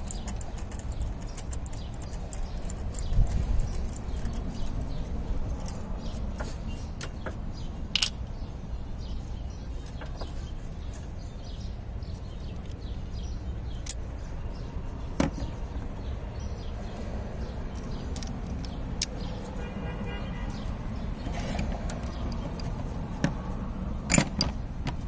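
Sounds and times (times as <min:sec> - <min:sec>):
metallic clicks of hand tools: 0:07.9 - 0:08.3, 0:13.8 - 0:14.2, 0:17.8 - 0:19.2, 0:24.1 - 0:24.9.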